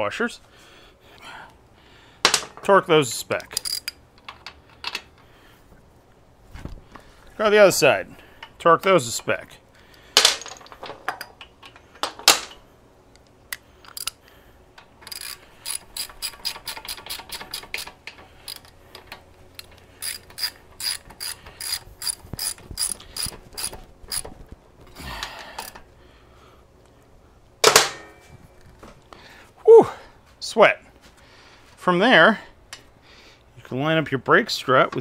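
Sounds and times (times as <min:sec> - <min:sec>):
wrench ratchet clicking: 0:03.4 - 0:04.0, 0:13.8 - 0:14.2, 0:15.0 - 0:24.3, 0:25.6 - 0:25.8.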